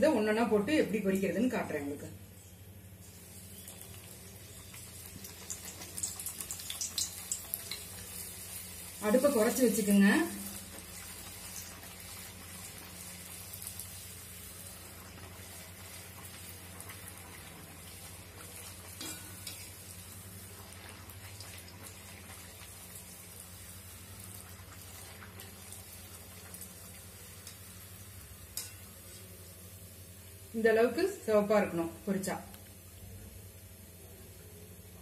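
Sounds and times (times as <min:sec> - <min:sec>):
dough sizzling in oil: 0:00.0 - 0:35.0.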